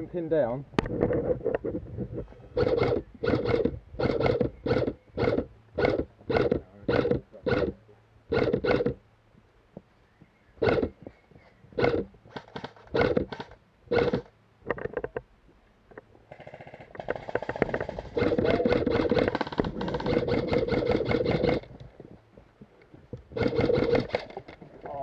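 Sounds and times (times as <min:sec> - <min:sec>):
airsoft rifle firing bursts: 0:02.6 - 0:07.7, 0:16.4 - 0:21.6, 0:23.3 - 0:24.2.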